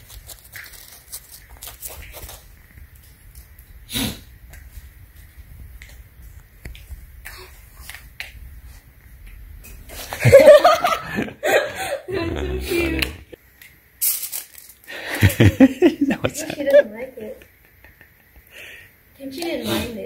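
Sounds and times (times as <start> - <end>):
loud voice: 12.1 - 13.3.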